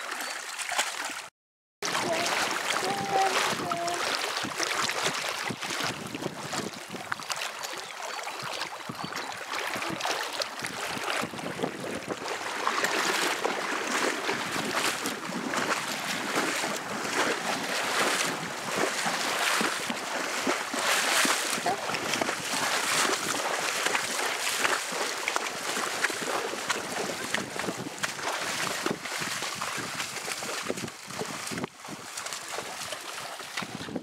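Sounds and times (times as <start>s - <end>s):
horse wading through water: 0.0s - 34.0s.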